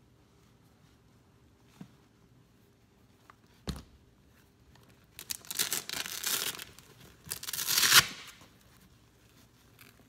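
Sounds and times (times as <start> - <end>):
hook-and-loop closure ripping open: 5.2 - 8.6.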